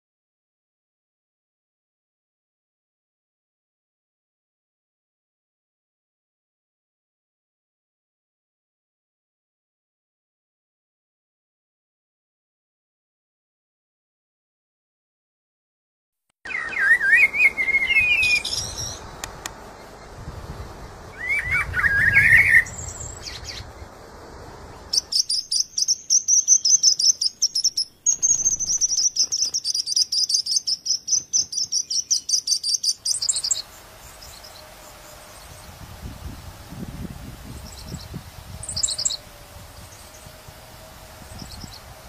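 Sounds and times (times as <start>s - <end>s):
small birds chirping: 16.5s - 42.0s.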